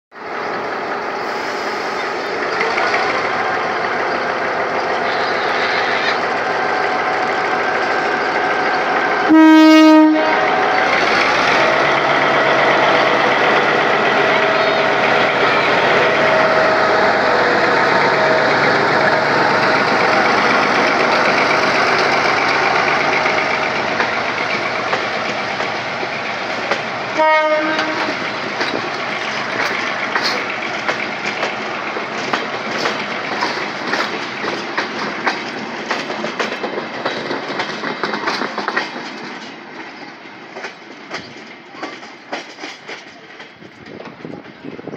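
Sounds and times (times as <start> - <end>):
diesel locomotive engine running: 0.2 - 44.9
train horn blast: 9.2 - 10.8, 27.1 - 28.2
wheels clicking over rail joints: 10.5 - 44.9.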